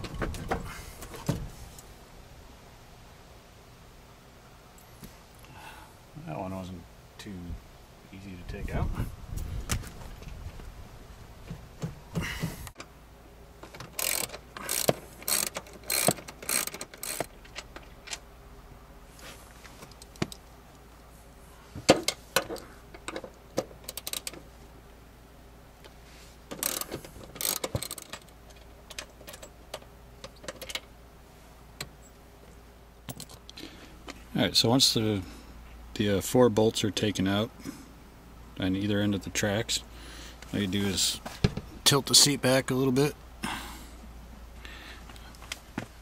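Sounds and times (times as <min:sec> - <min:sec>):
ratchet wrench clicking: 0:14.0 - 0:17.3, 0:26.6 - 0:28.2.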